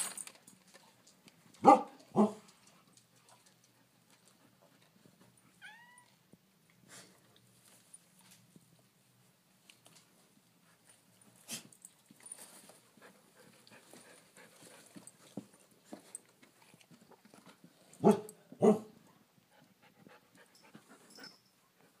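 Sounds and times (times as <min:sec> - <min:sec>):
dog sniffing and panting: 0:02.2 - 0:05.4, 0:10.6 - 0:18.2, 0:19.4 - 0:22.0.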